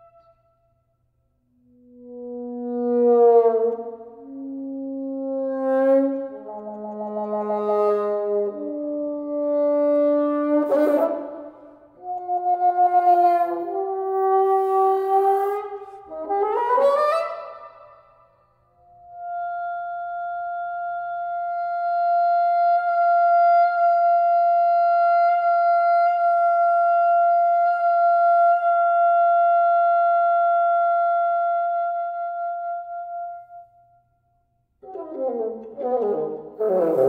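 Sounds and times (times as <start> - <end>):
bassoon passage with low notes: 34.8 - 37.0.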